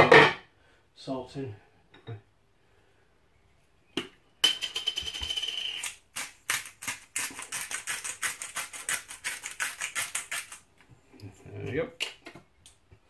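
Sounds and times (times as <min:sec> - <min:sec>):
salt shaker rattling: 0:04.4 - 0:10.6.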